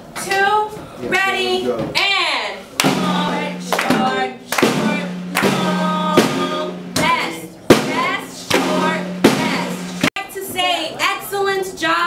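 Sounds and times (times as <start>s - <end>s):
snare drum strokes: 2.8s - 10.2s.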